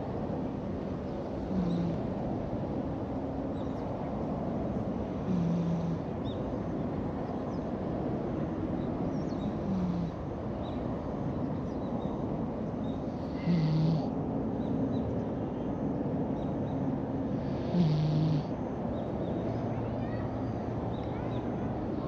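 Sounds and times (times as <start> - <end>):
cat snoring: 1.4 - 2.0, 5.2 - 6.0, 9.6 - 10.2, 13.2 - 14.1, 17.4 - 18.5.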